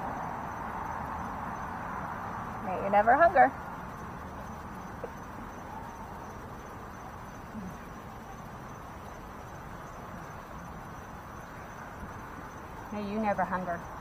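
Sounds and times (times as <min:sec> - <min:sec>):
background hiss: 0:00.0 - 0:14.0
high constant whine: 0:00.0 - 0:14.0
faint murmurs: 0:07.0 - 0:08.7.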